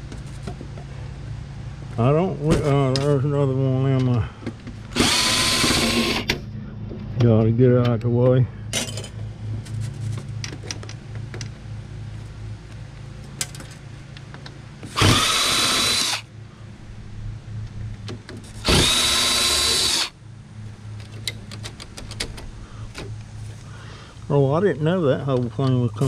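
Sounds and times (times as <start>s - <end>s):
cordless drill whining: 4.9s - 6.3s, 14.9s - 16.2s, 18.6s - 20.1s
loose parts clicking and rattling: 13.3s - 16.2s, 20.9s - 23.3s.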